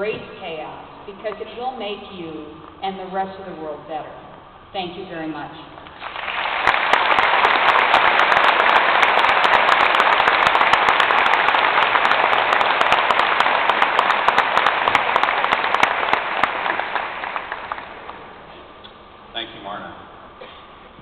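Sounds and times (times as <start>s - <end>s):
crowd applauding: 6.0s - 18.5s.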